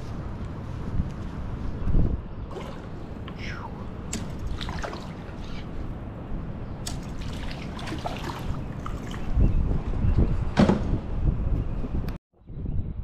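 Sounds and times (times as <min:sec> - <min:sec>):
wind rumble on microphone: 0:00.0 - 0:13.0
water splashing: 0:02.5 - 0:03.3, 0:04.0 - 0:05.5, 0:06.8 - 0:09.3.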